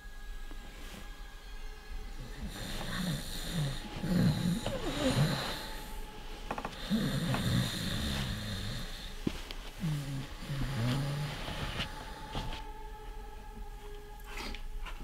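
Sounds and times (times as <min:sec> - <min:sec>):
person snoring: 0:02.2 - 0:12.5.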